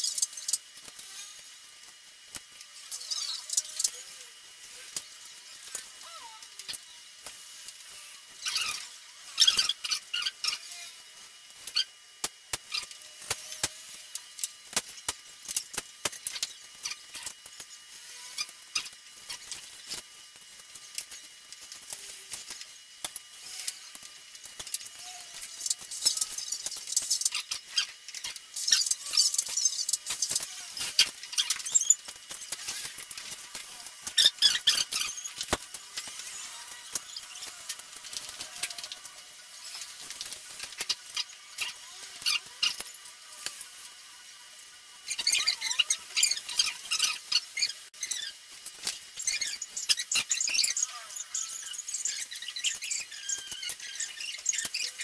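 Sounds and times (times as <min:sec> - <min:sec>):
small plastic squeaks: 0:08.4 - 0:11.0, 0:23.4 - 0:43.6, 0:45.0 - 0:55.0.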